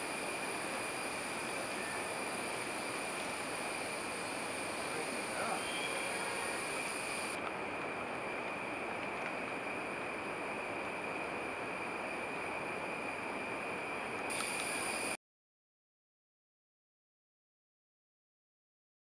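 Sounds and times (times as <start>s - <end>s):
forest background noise: 0.0s - 15.2s.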